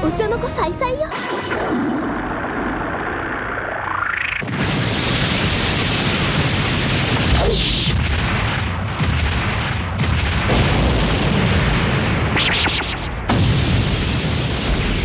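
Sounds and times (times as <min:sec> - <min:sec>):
burst with falling sweep: 0:01.1 - 0:08.0
explosions booming: 0:01.1 - 0:15.0
sharp cracks: 0:01.6 - 0:15.0.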